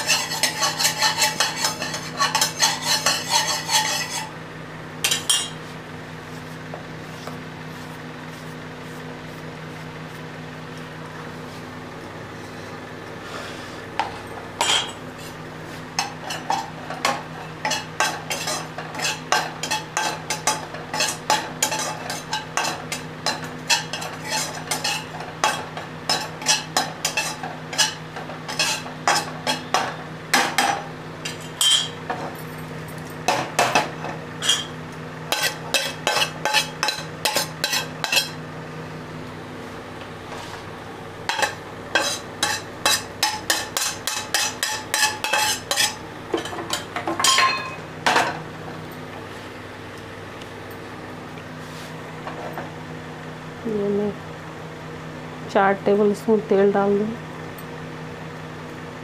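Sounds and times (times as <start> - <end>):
spoon scraping and tapping a pan: 0.0 - 4.3, 16.0 - 32.0, 35.3 - 38.4, 41.3 - 47.8
steady low hum: 0.0 - 59.0.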